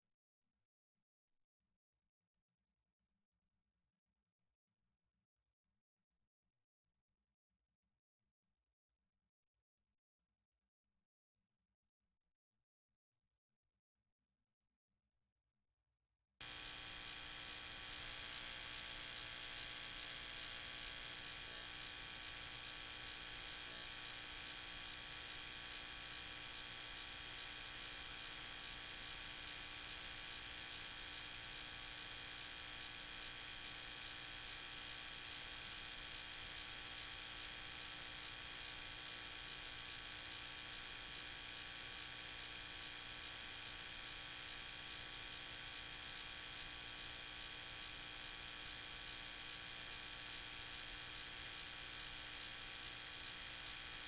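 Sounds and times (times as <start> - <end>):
electrical hum and buzz: 16.4 - 27.9.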